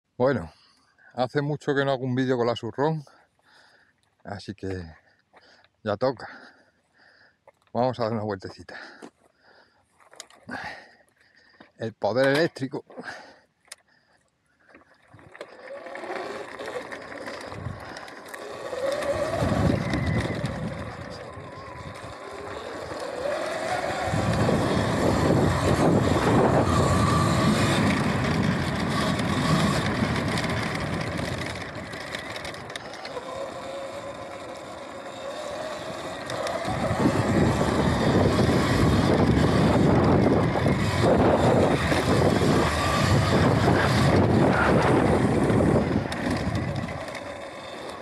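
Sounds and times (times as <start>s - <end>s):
dirt bike riding noise: 0.1s - 48.0s
electric motor whine: 15.0s - 48.0s.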